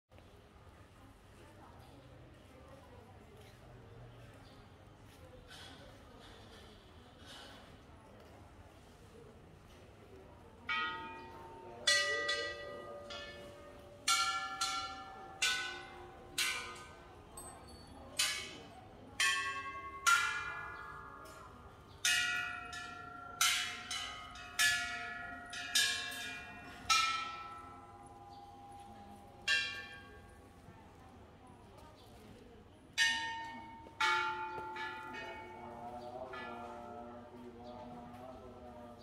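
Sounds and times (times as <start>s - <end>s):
temple bells ringing: 10.7s - 30.6s, 33.0s - 38.6s.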